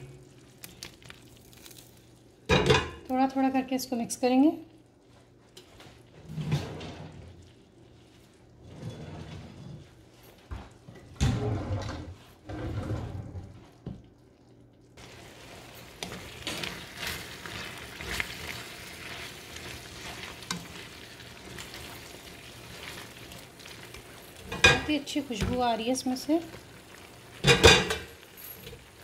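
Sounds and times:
sauce sizzling in a skillet: 15.0 - 29.0
spatula scraping a pan: 15.4 - 24.9.

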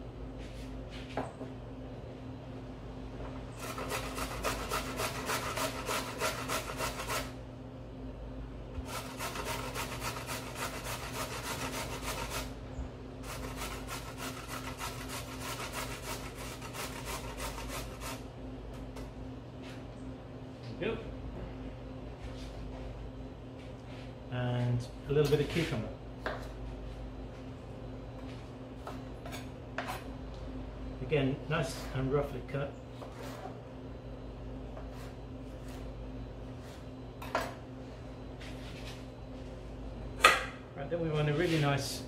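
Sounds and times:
carrot grating on metal grater: 3.6 - 7.3, 8.9 - 12.5, 13.2 - 18.2.

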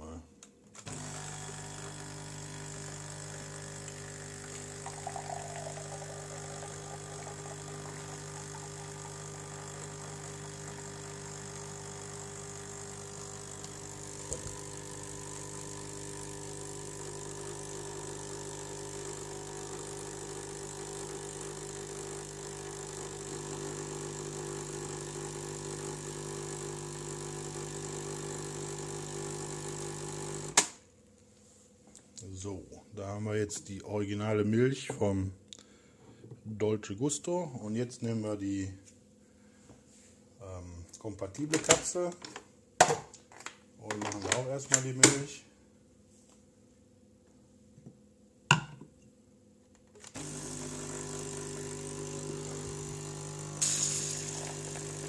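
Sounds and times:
capsule machine pump humming: 0.9 - 30.6, 50.0 - 55.0
machine gurgle: 3.7 - 10.0.

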